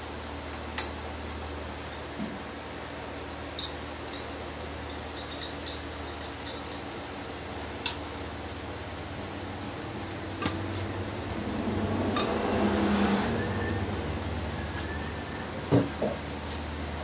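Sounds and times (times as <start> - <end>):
low hum: 8.5 - 17.0.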